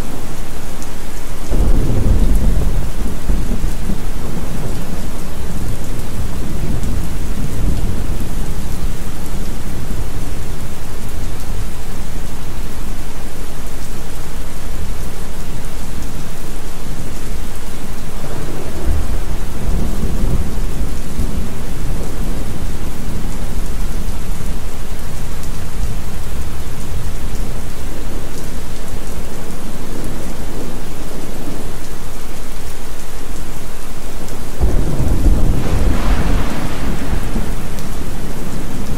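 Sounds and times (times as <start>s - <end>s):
heavy rain: 0.0s - 38.9s
low thunder rumbles: 1.5s - 10.6s, 18.0s - 28.7s, 34.5s - 38.9s.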